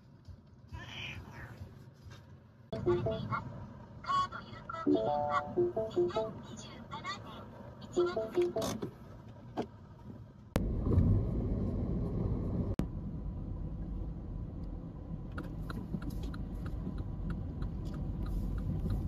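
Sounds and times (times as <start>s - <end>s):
car engine and tyre rumble: 0.0s - 19.0s
turn signal ticking: 8.0s - 10.6s, 14.5s - 19.0s.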